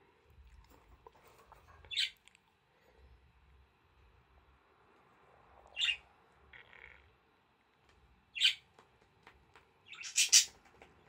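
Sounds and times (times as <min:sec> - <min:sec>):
budgerigar raspy squawks: 0:10.0 - 0:10.5.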